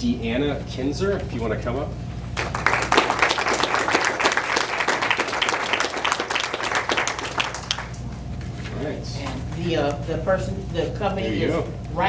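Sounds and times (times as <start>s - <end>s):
audience applauding: 2.4s - 8.0s.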